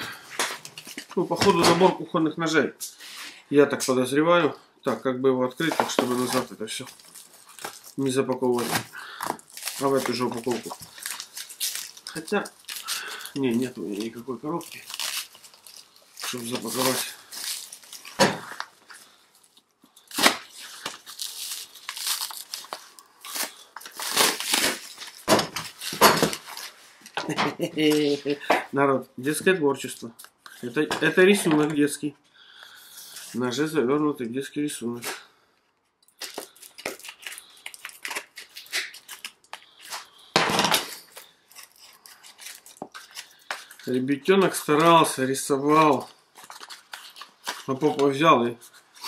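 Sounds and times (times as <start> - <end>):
plastic film crinkling and tearing: 5.4 - 27.2, 36.1 - 49.0
paper rustling: 5.6 - 19.2
paper crumpling: 5.6 - 27.0, 36.2 - 49.0.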